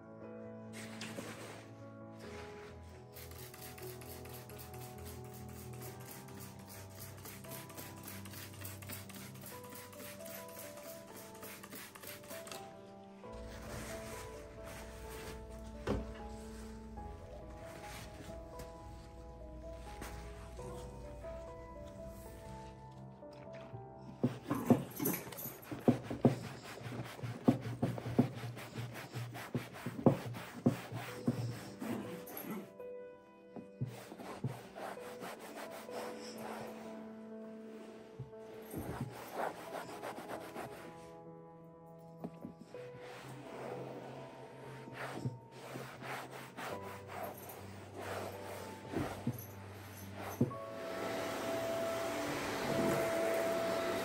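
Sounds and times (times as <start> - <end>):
brush scrubbing a surface: 1.1 - 12.6, 13.4 - 19.1, 25.6 - 32.6, 33.8 - 37.0, 38.7 - 41.1, 42.7 - 54.0
surface scrubbed by hand: 13.4 - 19.1, 38.8 - 41.1, 42.8 - 54.0.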